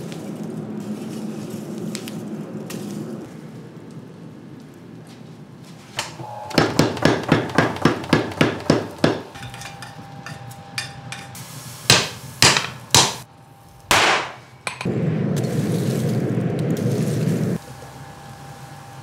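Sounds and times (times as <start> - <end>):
hammer striking hot steel on anvil: 6.0 - 13.3, 13.9 - 14.9.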